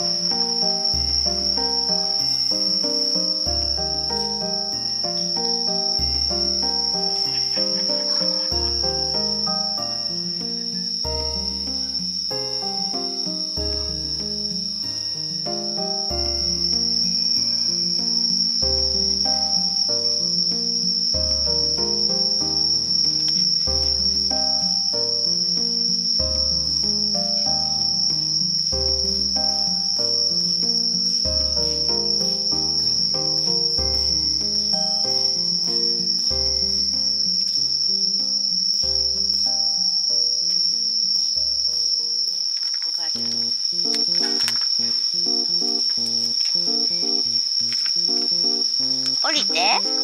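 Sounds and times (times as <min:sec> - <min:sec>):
crickets trilling: 0:00.0 - 0:50.0
soft background music: 0:00.0 - 0:50.0.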